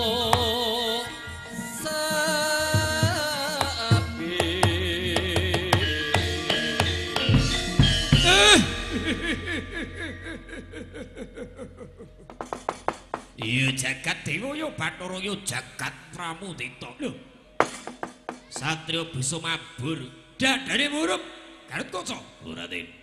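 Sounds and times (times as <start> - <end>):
wavering gamelan melody: 0.0 - 14.5
drum strokes: 2.8 - 14.0
sharp knocks: 12.2 - 13.8, 17.6 - 18.7.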